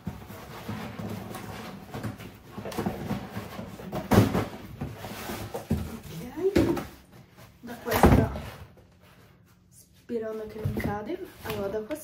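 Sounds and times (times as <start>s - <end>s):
cardboard rustling and scraping: 0.0s - 9.5s.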